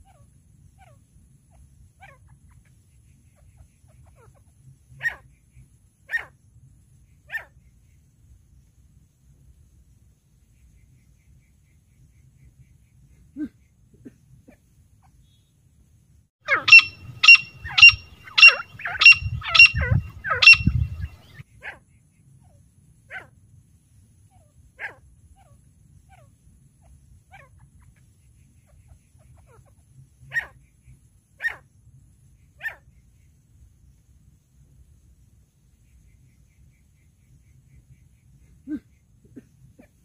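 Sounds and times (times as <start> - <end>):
francolin calling: 16.4 - 21.4
low rumble: 16.9 - 21.4.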